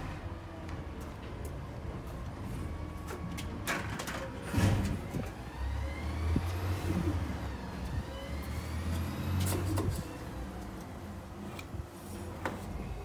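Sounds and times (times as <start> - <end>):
vehicle engine droning: 0.0 - 13.0.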